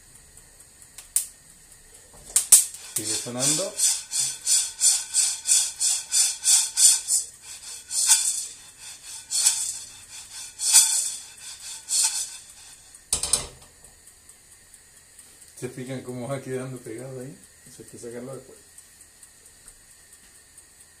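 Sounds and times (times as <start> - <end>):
coffee beans rattling in a pan: 1.8 - 13.7
coffee beans crackling: 2.2 - 13.2.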